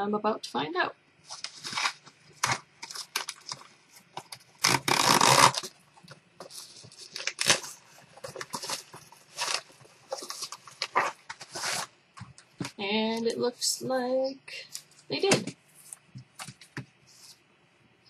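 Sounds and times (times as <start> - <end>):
envelope crinkling and ripping: 1.3 - 3.7, 4.5 - 5.8, 6.5 - 11.9
loud paper tear: 4.6 - 5.7, 7.2 - 7.8, 10.8 - 11.9.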